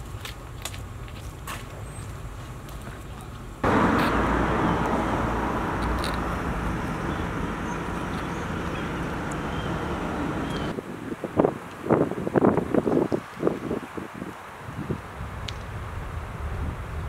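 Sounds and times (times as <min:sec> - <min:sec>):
road traffic rushing: 0:03.6 - 0:10.8.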